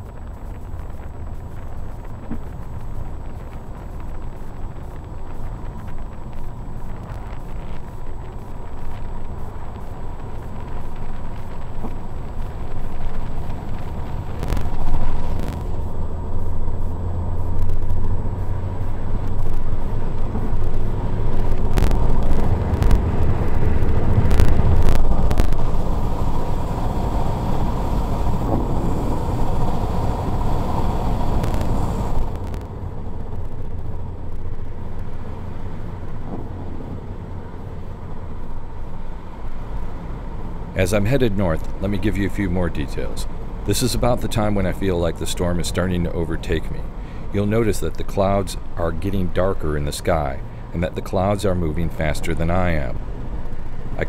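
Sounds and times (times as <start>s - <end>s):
road and wind noise in car: 0.0s - 54.0s
sharp clicks: 0.5s - 25.8s.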